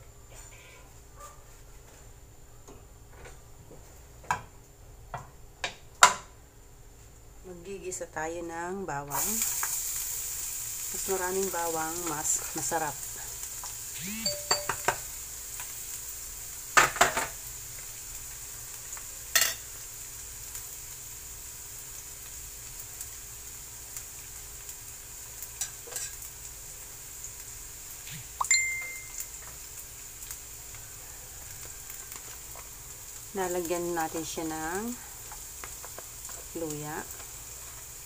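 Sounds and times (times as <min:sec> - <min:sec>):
garlic sizzling in oil: 0:09.0 - 0:38.0.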